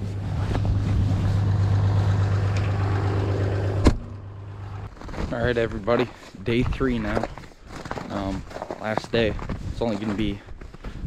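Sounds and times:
low motor hum: 0.0s - 5.2s.

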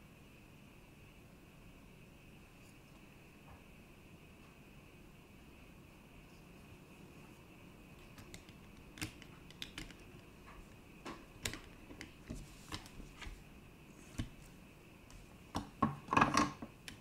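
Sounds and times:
circuit boards clicking and tapping: 8.0s - 13.3s.

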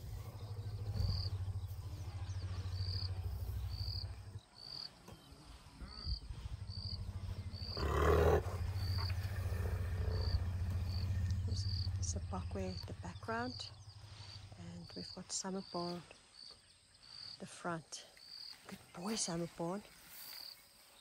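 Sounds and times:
elephants rumbling: 0.0s - 4.6s, 5.2s - 14.6s.

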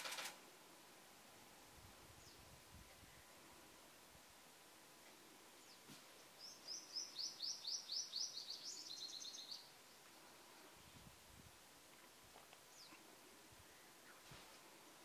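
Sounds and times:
bird singing: 5.6s - 10.4s, 13.7s - 14.3s.

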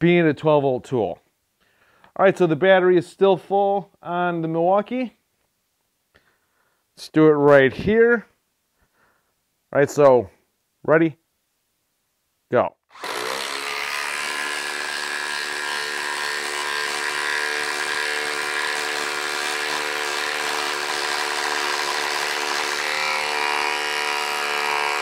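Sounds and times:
impact driver hammering: 12.9s - 25.0s.

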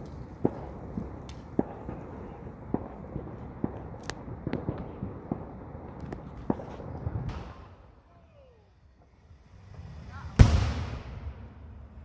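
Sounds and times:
distant firecrackers popping: 0.0s - 8.0s.

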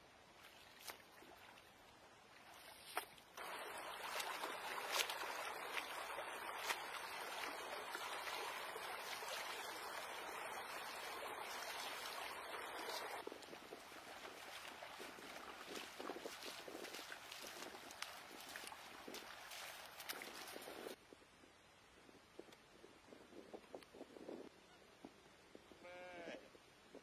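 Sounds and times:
river water running: 0.1s - 21.0s
hands splashing in water: 2.6s - 21.0s.

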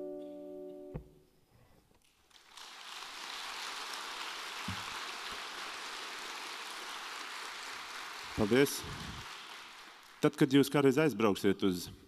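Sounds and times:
audience applauding: 2.2s - 10.8s.

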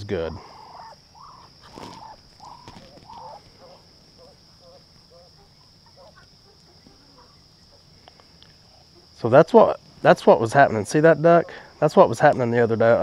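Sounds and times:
steady high-pitched whine: 0.0s - 13.0s
poultry clucking: 0.3s - 9.2s, 10.6s - 11.9s.

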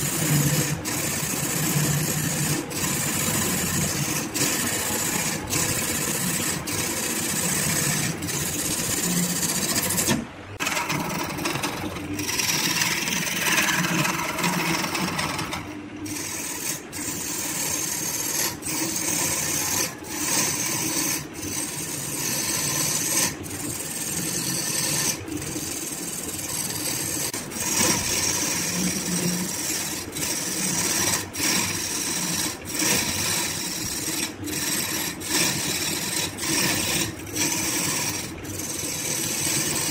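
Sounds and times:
lathe motor running: 0.0s - 39.9s.

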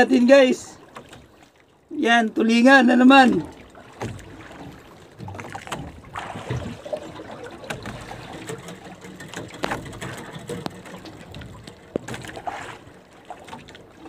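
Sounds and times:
water dripping and splashing: 0.6s - 1.9s, 3.2s - 14.0s.

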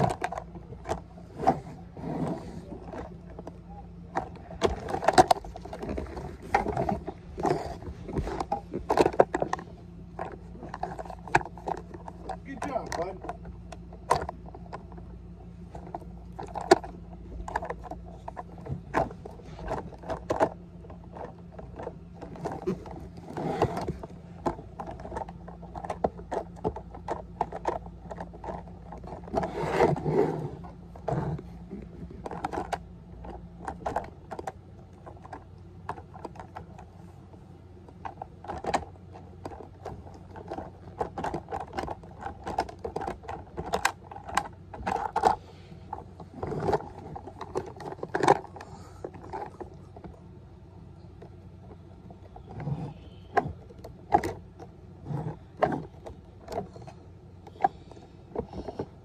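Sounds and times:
scraping rustle: 0.0s - 13.4s, 14.2s - 50.2s
faint low hum: 0.0s - 59.0s
plastic toy clicks and knocks: 37.9s - 45.4s.

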